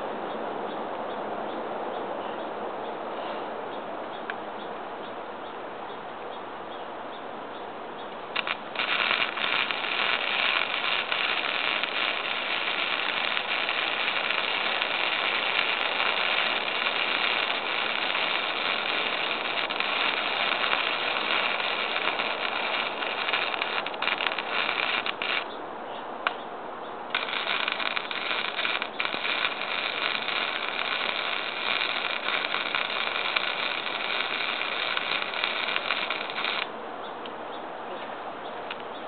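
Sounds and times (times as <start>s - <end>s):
welding arc crackling: 8.4s - 25.5s, 27.1s - 36.7s.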